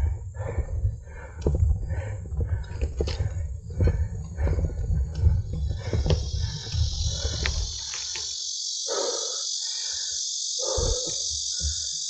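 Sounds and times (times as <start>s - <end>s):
wind rumble on microphone: 0.0s - 7.8s
shrill insect chorus: 4.3s - 12.0s.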